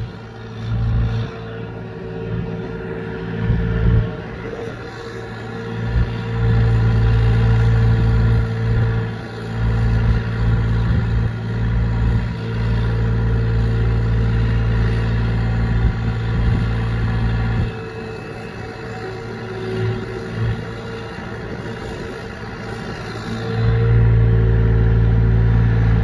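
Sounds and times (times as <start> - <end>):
excavator diesel engine under load: 0.0 - 26.0.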